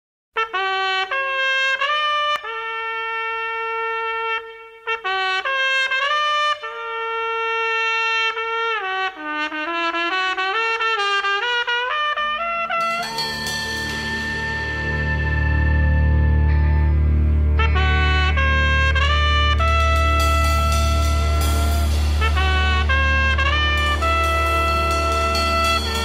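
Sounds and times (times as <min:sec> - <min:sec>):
solo trumpet melody: 0:00.4 - 0:26.0
cymbal wash: 0:12.6 - 0:26.0
low bass: 0:12.6 - 0:26.0.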